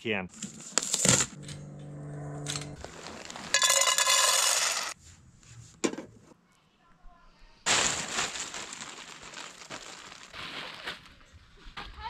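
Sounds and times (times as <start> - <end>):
metal clinks and scrapes: 2.5 - 5.0.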